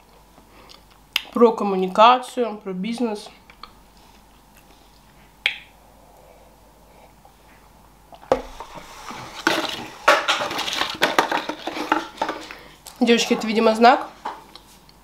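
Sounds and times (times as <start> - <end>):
clattering and rustling handling noise: 7.3 - 14.9.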